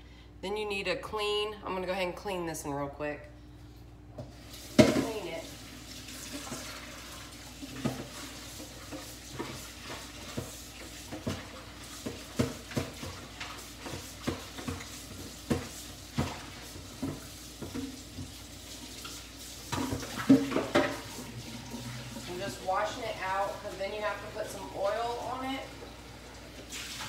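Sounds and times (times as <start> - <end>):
container knocking in sink: 4.2 - 5.3.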